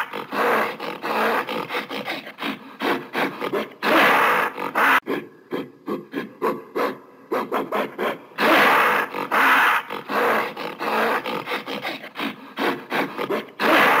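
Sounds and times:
gorilla harsh calls: 0.0 - 6.6, 8.4 - 14.0
gorilla grunting: 0.0 - 14.0.

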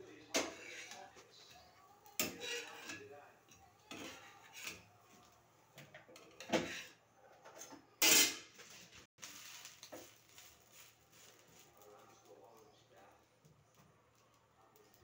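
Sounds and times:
metal spatula clattering on pans: 0.3 - 1.2, 2.1 - 5.1, 5.8 - 8.6.

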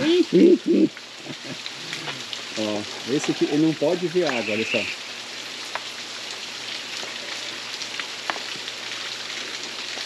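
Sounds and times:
running water hiss: 0.0 - 10.0.

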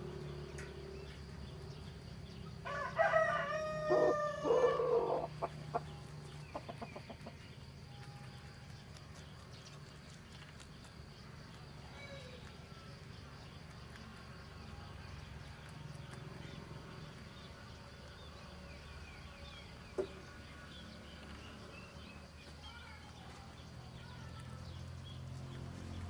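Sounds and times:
rooster crowing: 2.6 - 5.4
rabbit chewing clicks: 5.5 - 18.3.

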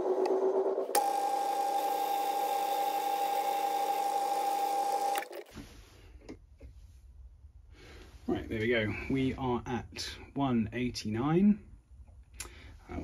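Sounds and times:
lathe whining: 0.0 - 5.4.

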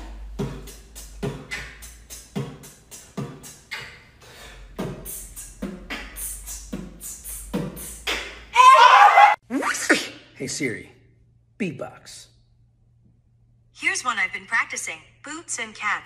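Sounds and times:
beatboxing kick and hi-hat: 0.0 - 8.5.

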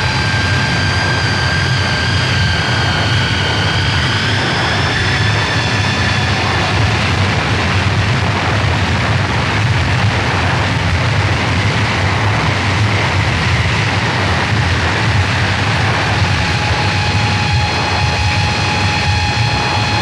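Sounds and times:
high whining tones: 0.0 - 7.2, 14.9 - 20.0
distorted noise music: 0.0 - 20.0
heavy low rumble: 0.0 - 20.0.

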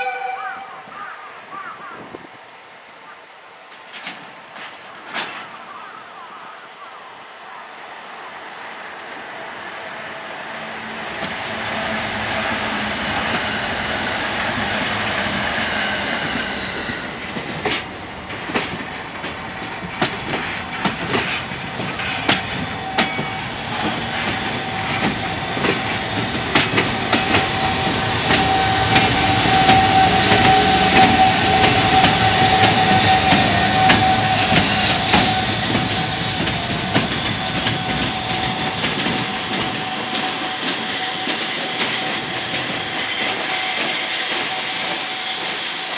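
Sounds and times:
freight train rumble: 2.1 - 45.9
wheel clicks at rail joints: 3.7 - 5.7, 17.3 - 45.6.

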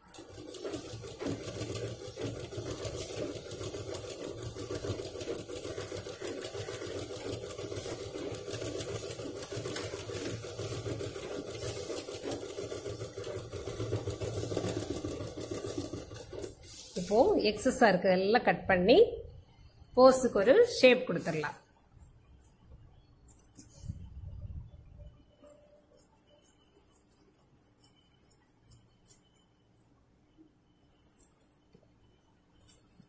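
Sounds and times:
sewing machine stitching: 0.0 - 17.4.

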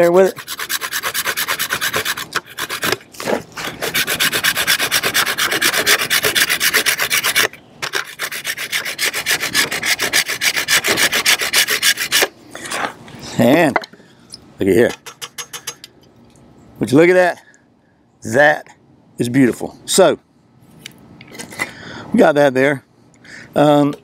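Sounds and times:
wood stick scraping on metal grater: 0.0 - 12.3.

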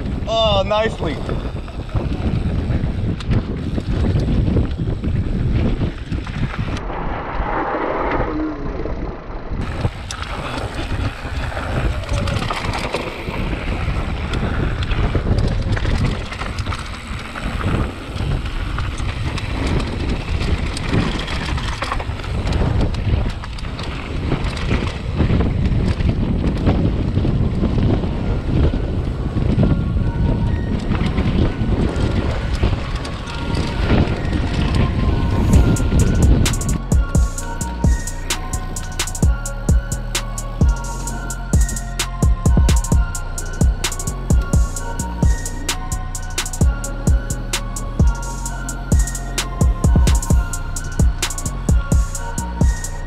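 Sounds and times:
bike clicking and rattling: 0.0 - 6.8, 8.8 - 42.1
wind buffeting microphone: 0.0 - 53.0.

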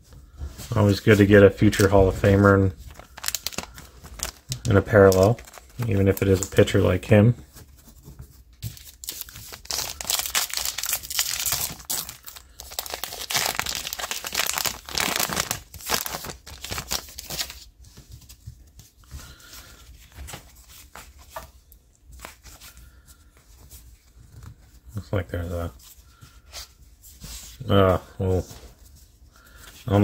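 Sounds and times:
cards rustling and clicking: 1.0 - 24.7
wrapper tearing and crinkling: 1.6 - 6.8, 8.8 - 17.7.

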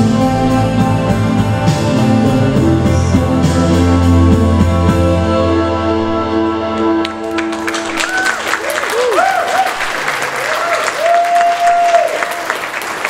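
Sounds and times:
hand claps: 7.0 - 13.0.

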